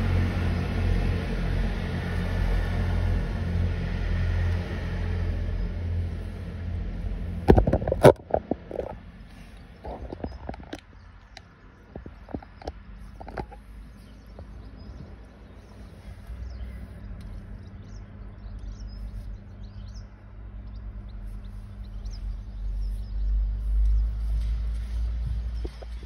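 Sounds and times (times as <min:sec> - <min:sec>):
car engine rumble from inside: 0:00.0 - 0:10.4, 0:12.7 - 0:26.0
faint bird chirps: 0:20.7 - 0:24.3.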